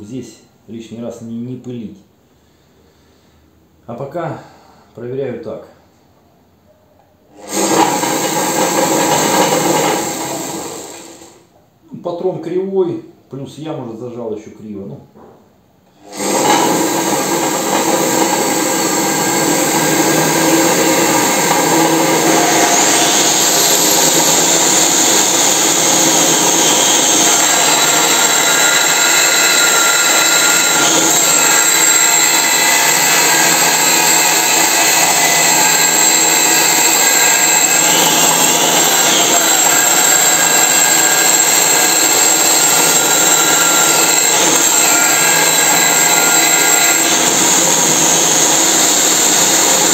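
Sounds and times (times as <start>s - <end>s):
electric motor running: 7.4s - 11.3s, 16.0s - 49.9s
angle grinder grinding metal: 7.4s - 11.4s, 16.0s - 49.9s.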